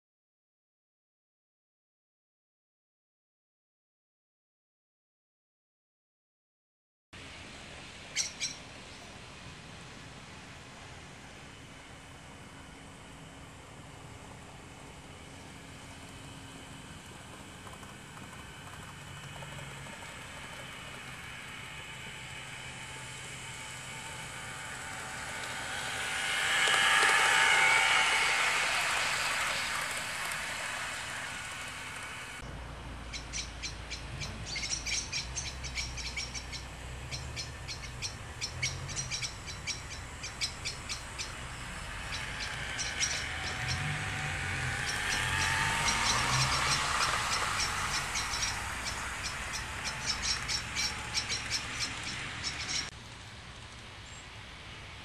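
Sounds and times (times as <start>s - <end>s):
model train motor whine: 11.2s - 32.4s, 35.4s - 52.9s
wheels clicking over rail joints: 14.2s - 32.5s, 33.1s - 53.9s.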